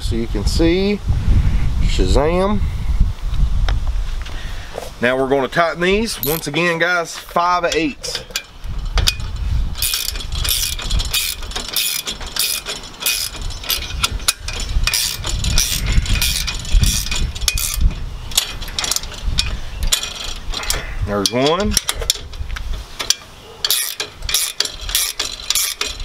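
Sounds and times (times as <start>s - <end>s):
ratcheting wrench clicking: 6.2s - 6.6s, 7.7s - 26.0s.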